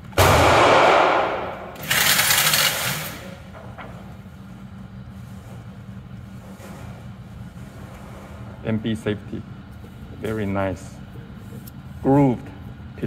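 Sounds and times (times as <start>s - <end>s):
gunshots echoing indoors: 0.0s - 2.9s
steady low hum: 0.0s - 13.0s.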